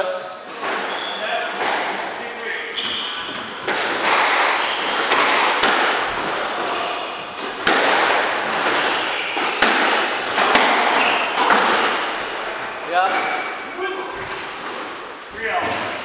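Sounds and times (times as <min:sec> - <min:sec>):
squash ball cracks and thuds: 0:03.3 - 0:12.5.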